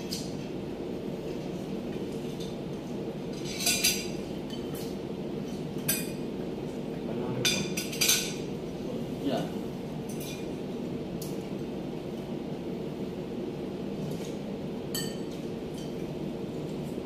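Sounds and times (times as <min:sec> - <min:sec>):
steady low hum: 0:00.0 - 0:17.0
cutlery clinking on plates: 0:07.5 - 0:08.4.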